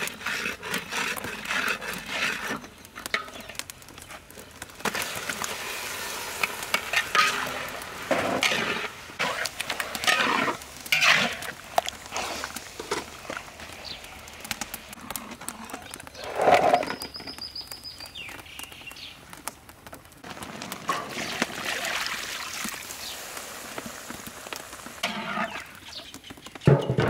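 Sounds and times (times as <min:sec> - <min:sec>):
food sizzling: 0:04.7 - 0:15.0, 0:20.2 - 0:27.0
metal ladle scraping wok: 0:05.8 - 0:13.1, 0:25.0 - 0:25.7.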